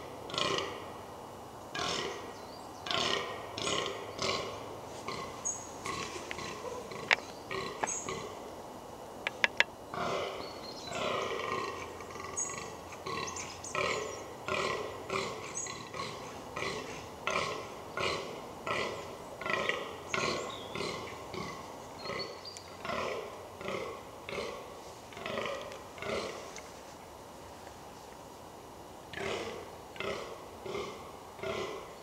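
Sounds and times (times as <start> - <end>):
deer groaning calls: 1.7 - 8.4
sharp clicks: 9.3 - 9.7.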